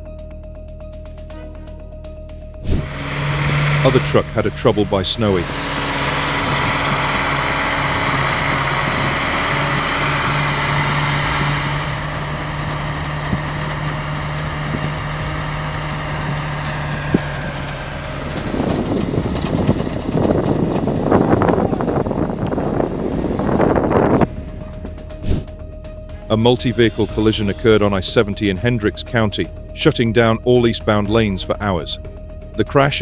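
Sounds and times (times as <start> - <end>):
heavy vehicle engine running: 1.0 - 33.0
uneven gusty noise: 2.6 - 25.5.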